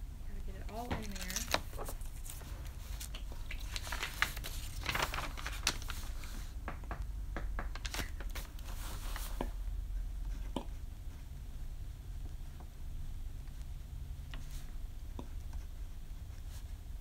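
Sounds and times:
plastic bottle crinkling: 3.0 - 6.0.

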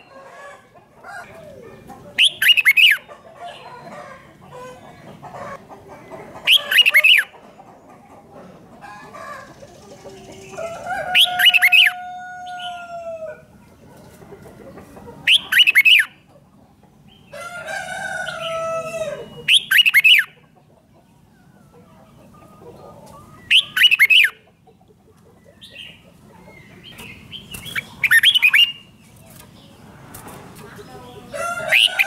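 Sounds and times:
rooster crowing: 0.0 - 1.7, 10.6 - 13.5, 17.3 - 19.4, 31.3 - 32.0
bulbul singing: 2.2 - 3.7, 23.3 - 24.4, 25.5 - 29.8.

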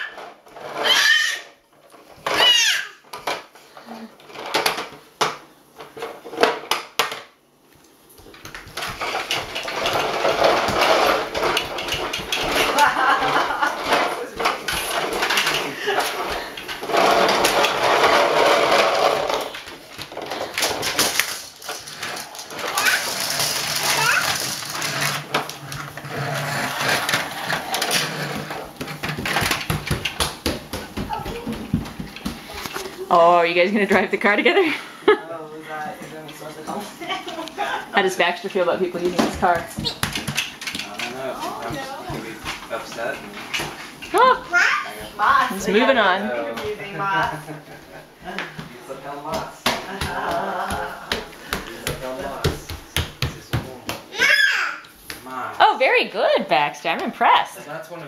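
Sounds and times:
toy truck rolling rattle: 0.0 - 3.4, 8.5 - 30.2.

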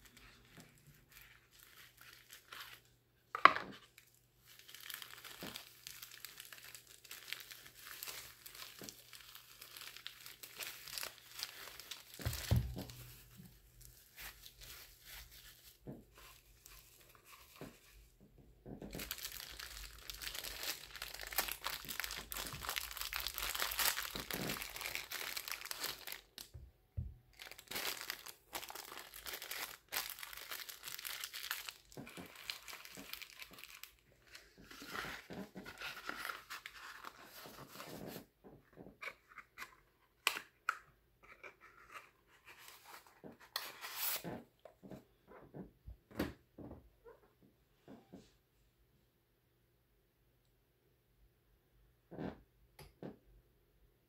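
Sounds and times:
bubble wrap and plastic crinkling: 0.0 - 18.1, 18.8 - 26.6, 27.3 - 38.3.

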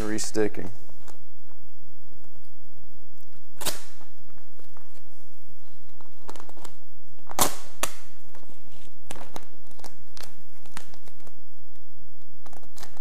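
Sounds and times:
vinyl film crackling and snapping: 3.1 - 5.0, 5.8 - 13.0.

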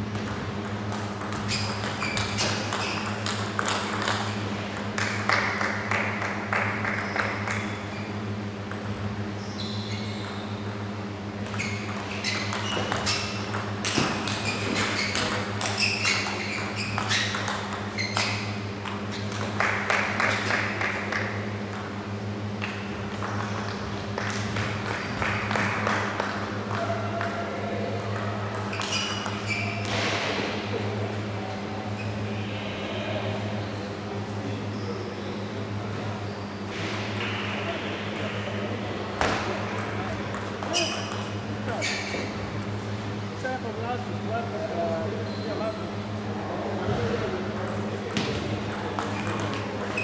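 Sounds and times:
steady low hum: 0.0 - 50.0
table tennis ball clicks: 28.0 - 30.0.

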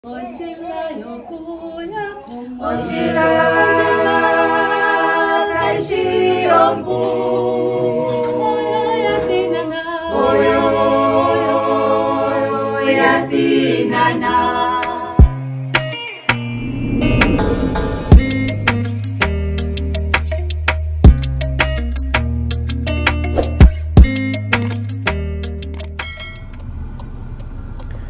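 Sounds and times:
group singing unaccompanied: 0.4 - 15.3.

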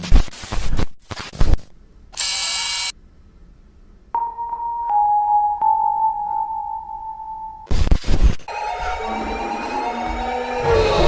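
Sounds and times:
static crackle bursts: 0.0 - 1.7, 7.7 - 8.5.

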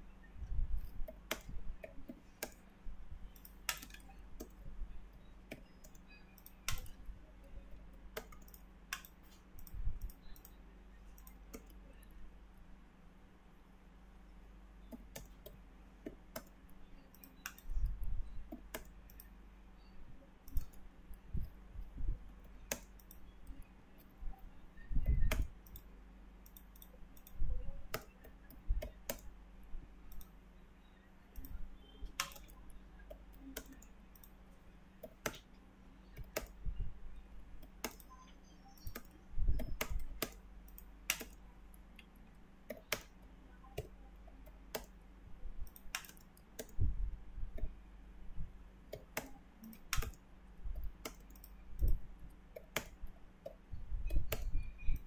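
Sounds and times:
faint low hum: 0.0 - 55.0
computer mouse clicks: 0.4 - 2.7, 3.3 - 12.2, 14.8 - 29.4, 30.1 - 30.4, 31.3 - 34.4, 35.0 - 36.8, 37.6 - 45.0, 45.6 - 47.8, 48.9 - 55.0
keyboard typing: 0.8 - 2.7, 3.3 - 12.2, 14.8 - 29.4, 31.3 - 47.8, 48.9 - 55.0.

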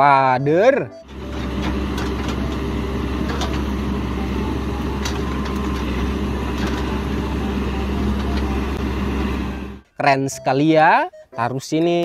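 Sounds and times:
diesel engine droning: 1.0 - 9.9.

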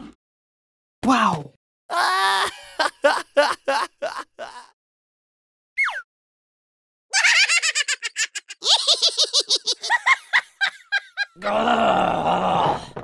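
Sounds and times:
cartoon character giggling: 7.1 - 11.4.

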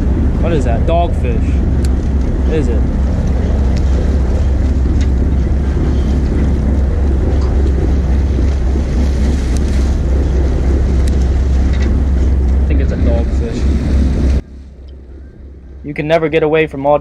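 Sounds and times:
boat engine rumbling: 0.0 - 17.0
wind buffeting microphone: 0.0 - 17.0.

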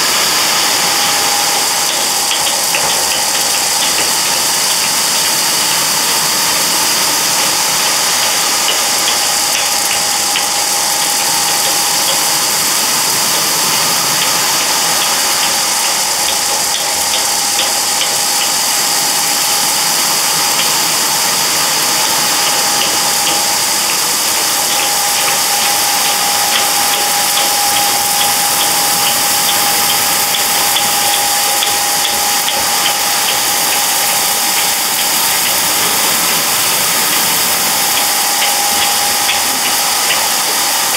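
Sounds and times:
motor hum with whine: 0.0 - 40.9.

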